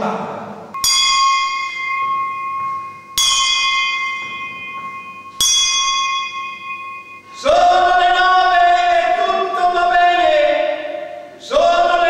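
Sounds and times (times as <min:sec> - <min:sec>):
bell ringing: 0:00.8 - 0:09.8.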